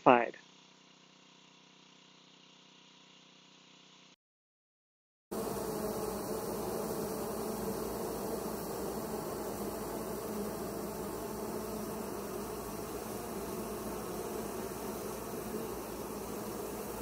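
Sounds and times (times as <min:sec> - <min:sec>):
honeybees buzzing: 0:05.3 - 0:17.0.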